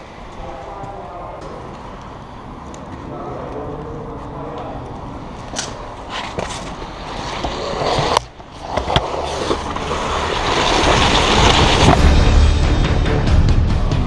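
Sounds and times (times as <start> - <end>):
gear scraping against concrete: 5.3 - 12.2.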